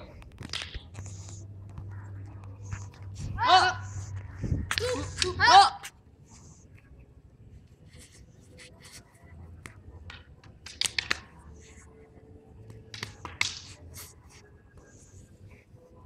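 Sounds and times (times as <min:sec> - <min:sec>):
stick swishes: 0:00.0 - 0:06.0, 0:07.9 - 0:11.8
sticks clicking and cracking: 0:00.1 - 0:01.1, 0:09.6 - 0:11.3.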